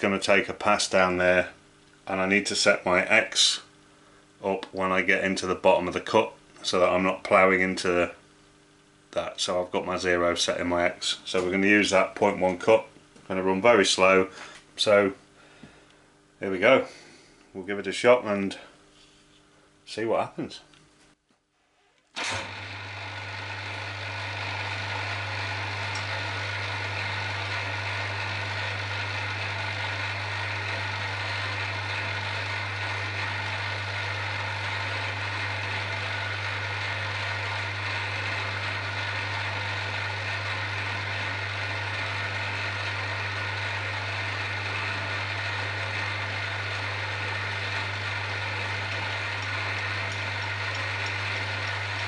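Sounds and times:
low electrical hum: 0.0 - 52.0
milling machine running: 22.2 - 52.0.

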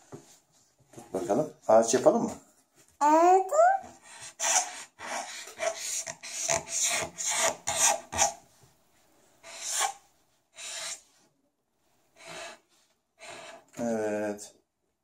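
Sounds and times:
marker scratching on paper: 3.8 - 8.4, 9.4 - 11.1, 12.2 - 13.7.

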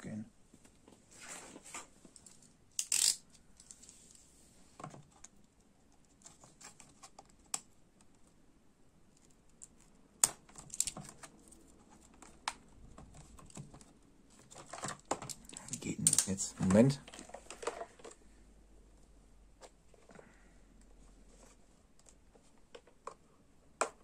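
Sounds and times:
hard plastic clicks and scrapes: 10.4 - 18.2.

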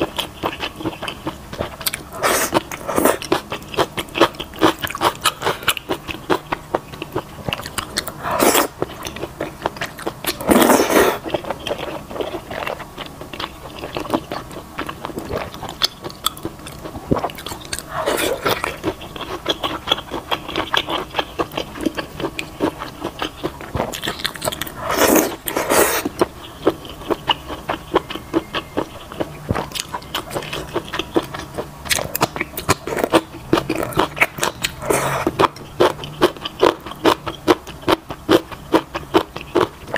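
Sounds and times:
wet chewing and smacking: 0.0 - 39.9
noodle slurps: 2.1 - 3.2, 8.2 - 8.7, 10.4 - 11.3, 24.8 - 26.1, 34.7 - 35.4.

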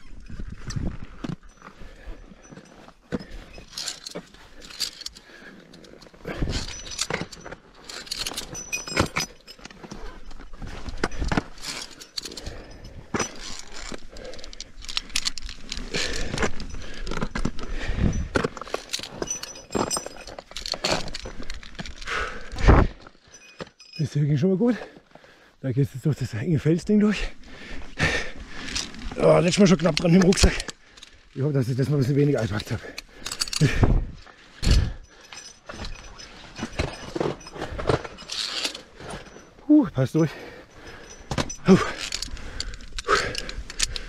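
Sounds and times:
carabiners clinking on steel cable: 0.0 - 44.0
crampons scraping on rock: 33.7 - 39.6.

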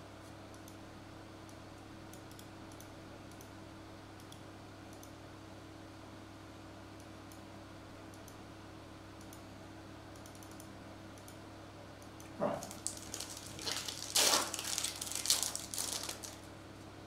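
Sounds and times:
foil wrapper tearing and crinkling: 12.8 - 16.5.

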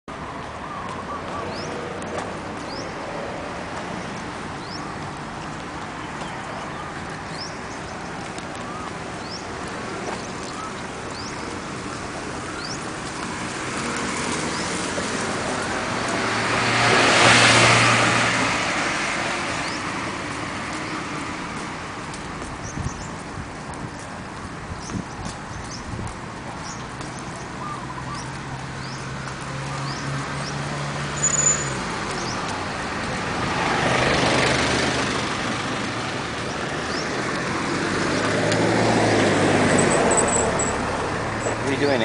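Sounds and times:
road traffic: 0.0 - 42.0
car passing close by: 12.6 - 21.9, 28.7 - 42.0.

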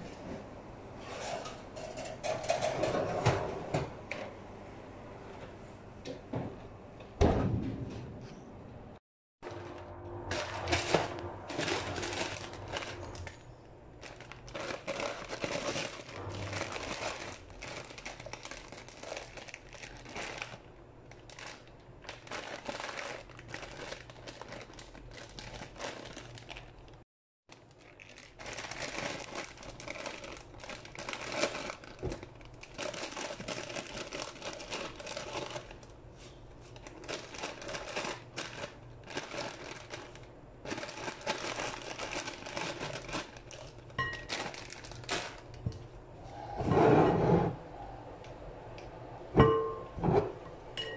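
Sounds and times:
plastic bag crinkling: 9.4 - 45.7.

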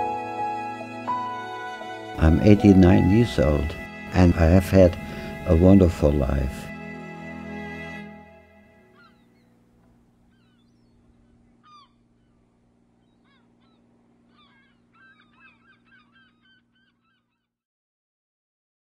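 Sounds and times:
low steady hum: 1.8 - 16.7
honking water bird calls: 10.3 - 12.4, 13.0 - 17.2.

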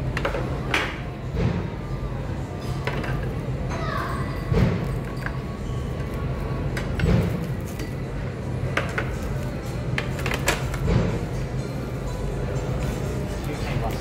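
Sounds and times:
crowded dining room noise: 0.0 - 14.0
bowls and utensils clinking: 4.1 - 8.1.

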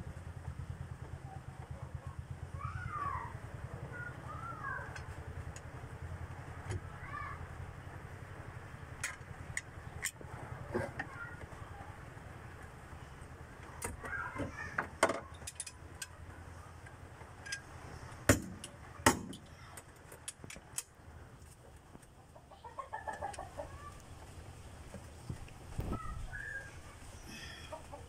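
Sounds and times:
chickens clucking: 21.6 - 24.4, 27.4 - 28.0.

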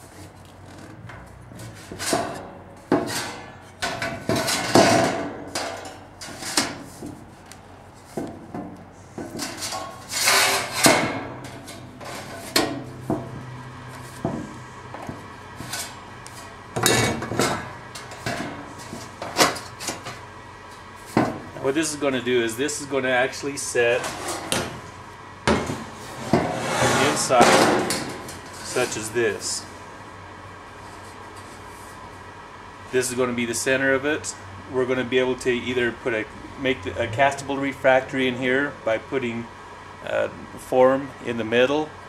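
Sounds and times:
sheet metal knocks and scrapes: 1.6 - 7.2, 14.2 - 16.0, 25.5 - 28.6.

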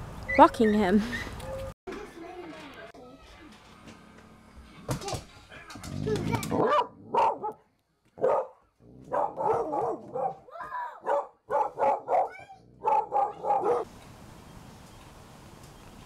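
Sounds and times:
dog yelping: 6.0 - 7.6, 8.2 - 8.5, 9.1 - 13.9
dog barking: 6.5 - 7.6, 8.2 - 13.9.

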